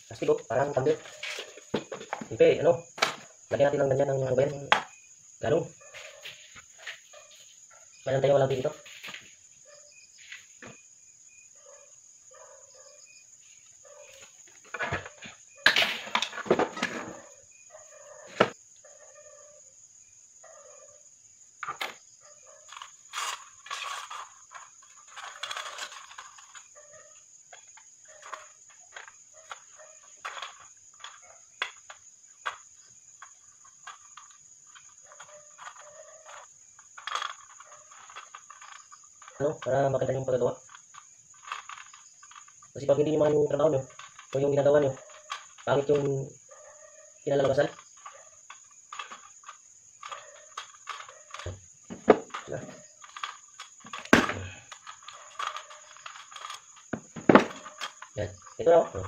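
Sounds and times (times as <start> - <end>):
crickets chirring: 0.0 - 59.0
cans and wire clinking: 22.6 - 26.8, 27.5 - 46.4, 47.2 - 59.0.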